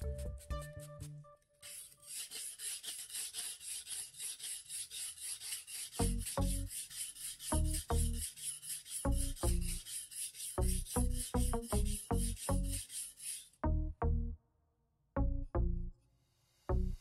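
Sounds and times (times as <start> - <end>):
background music: 0.0 - 1.6, 6.0 - 6.7, 13.6 - 14.4, 15.2 - 15.9, 16.7 - 17.0
knife scraping on whetstone: 1.6 - 13.6.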